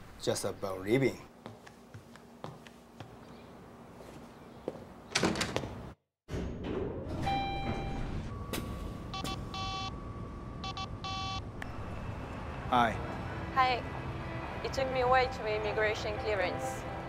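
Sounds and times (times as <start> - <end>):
elevator chime: 7.2 - 11.6
phone ringtone: 9.1 - 10.0, 10.6 - 11.4.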